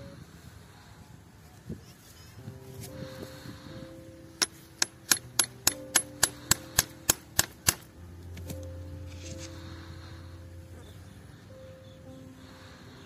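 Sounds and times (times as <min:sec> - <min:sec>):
faint music: 0:00.0 - 0:13.0
metallic taps on tube punch: 0:04.4 - 0:07.9.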